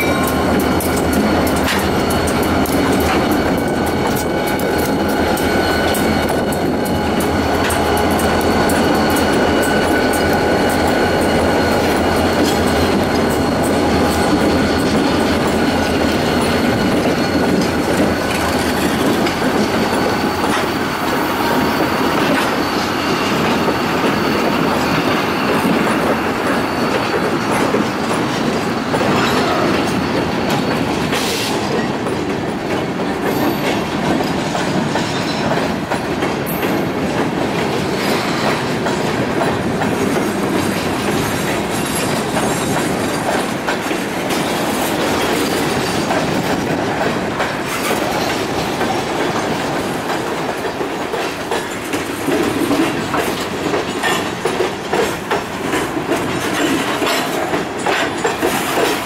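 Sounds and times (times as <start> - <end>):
faint high wheel squeal: 0.0 - 31.4
clickety-clack over rail joints: 0.0 - 59.0
rumble of wheels on rail: 0.0 - 59.0.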